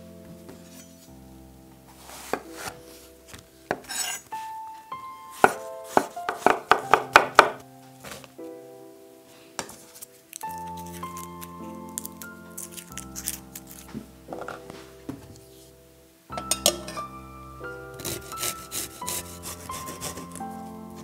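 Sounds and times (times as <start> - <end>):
soft background music: 0.0 - 21.0
knife chopping on wooden board: 5.4 - 7.6.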